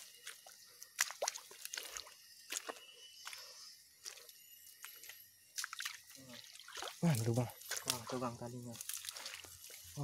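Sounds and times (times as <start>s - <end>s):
footsteps squelching in mud: 0.0s - 10.0s.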